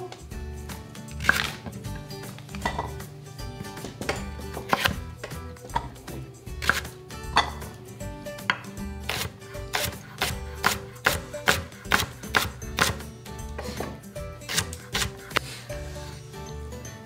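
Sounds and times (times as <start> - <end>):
knife cutting leek on board: 1.1 - 1.8, 4.0 - 6.0, 6.6 - 7.6, 8.5 - 13.0, 14.4 - 15.6.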